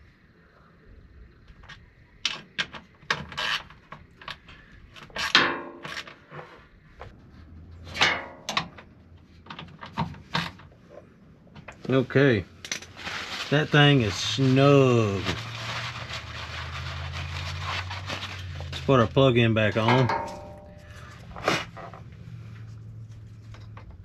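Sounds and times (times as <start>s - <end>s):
socket scraping: 3.1s - 6.7s.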